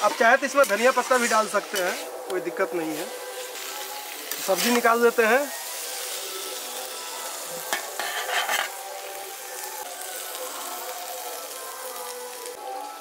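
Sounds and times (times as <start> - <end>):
curry sizzling in metal pan: 0.0 - 13.0
steel spatula scraping: 7.7 - 8.8.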